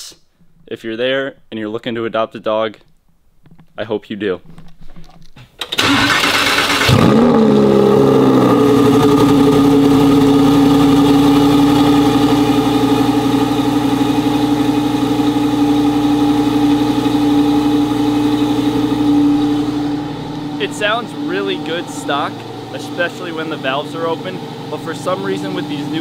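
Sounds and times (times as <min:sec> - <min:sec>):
car engine revving and idling: 0:05.8 - 0:26.0.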